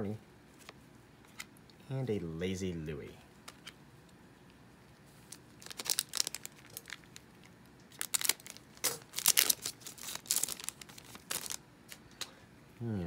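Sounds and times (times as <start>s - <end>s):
foil wrapper crinkling: 5.2s - 12.0s.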